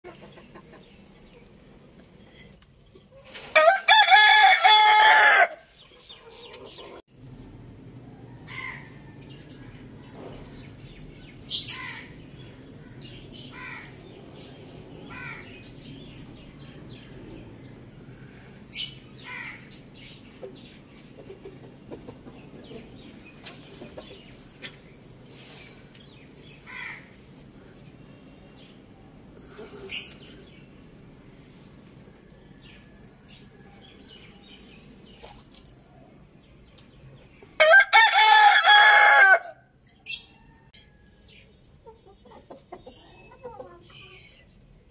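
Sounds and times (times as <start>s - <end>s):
rooster crowing: 3.5s - 5.7s, 37.6s - 39.6s.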